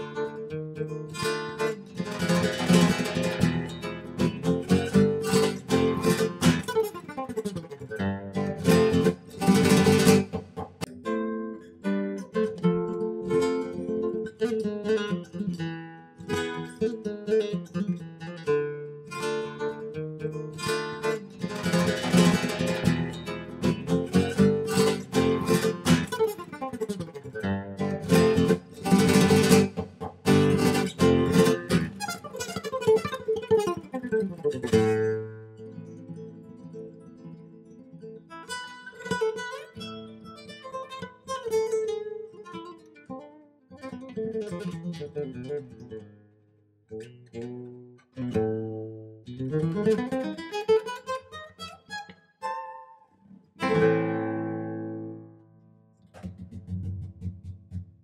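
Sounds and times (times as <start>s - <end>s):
acoustic guitar music: 0.0s - 58.0s.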